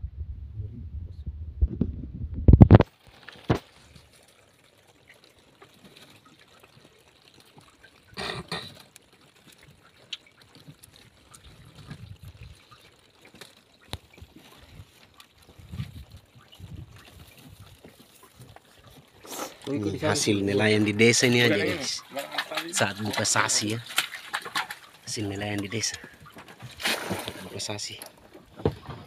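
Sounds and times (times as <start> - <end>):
underwater rumble: 0.0 - 4.1, 5.3 - 13.2, 13.8 - 22.1
water dripping and trickling: 2.8 - 29.0
splash or scrape: 10.3 - 19.9, 21.1 - 28.0.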